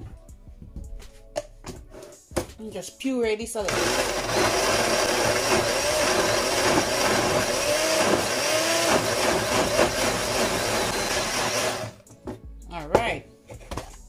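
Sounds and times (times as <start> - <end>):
blender running: 3.7 - 12.0.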